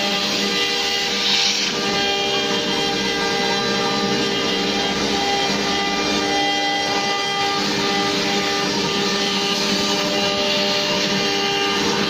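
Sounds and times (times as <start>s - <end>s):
cutter cutting wood: 0.0s - 12.0s
wood router whining: 0.0s - 12.0s.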